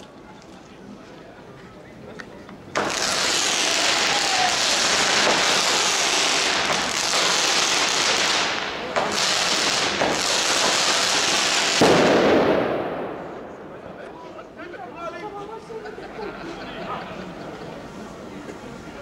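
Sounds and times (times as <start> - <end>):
ground firework spraying sparks: 2.7 - 12.9
fireworks hissing: 2.8 - 12.6.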